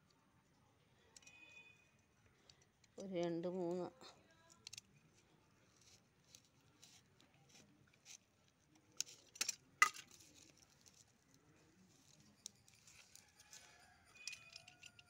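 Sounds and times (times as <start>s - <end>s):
knife scratching in soil: 5.6s - 8.3s, 11.8s - 15.0s.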